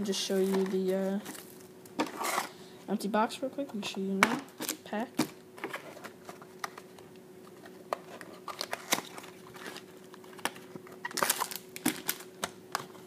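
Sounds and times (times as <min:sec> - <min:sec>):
packaging crinkling: 0:07.5 - 0:13.0.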